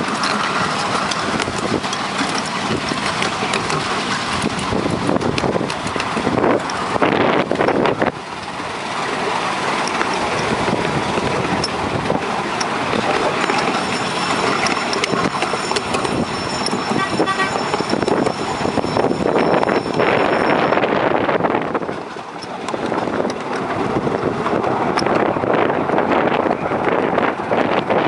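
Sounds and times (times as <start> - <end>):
track clicks: 0.0 - 7.8, 8.4 - 21.0
miniature train wheels rumbling on rail: 0.0 - 28.0.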